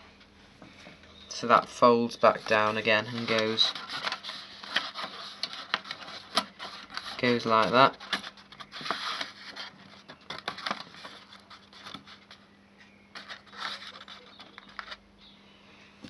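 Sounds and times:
faint steady hum: 0.0 - 16.0
hands scraping plastic cover: 2.3 - 12.4, 13.1 - 15.0.

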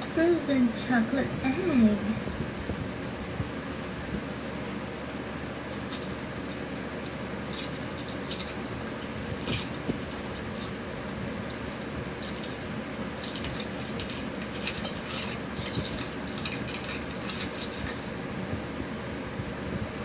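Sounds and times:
foil wrapper crinkling: 4.6 - 18.3.

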